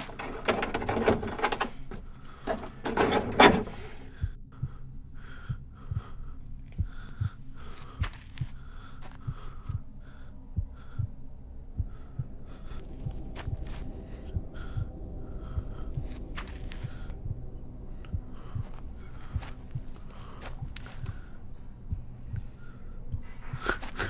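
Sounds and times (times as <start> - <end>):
metal latch rattling: 0.0 - 3.8
heartbeat thumping: 4.1 - 24.0.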